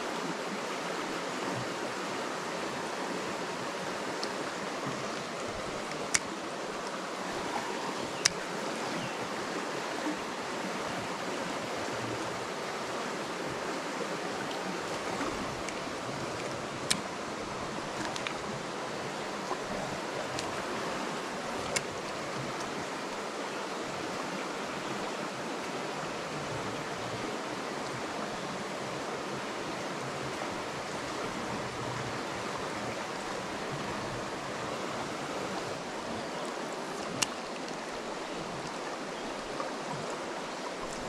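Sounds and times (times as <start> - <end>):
creek babbling over rocks: 0.0 - 41.0
sharp clicks: 5.8 - 6.4, 8.1 - 8.4.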